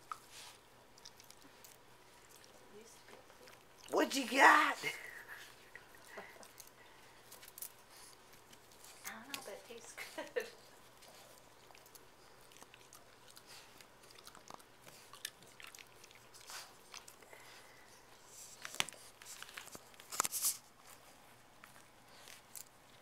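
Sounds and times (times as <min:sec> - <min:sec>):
dog chewing and ripping plush toy: 0:10.8 - 0:17.6.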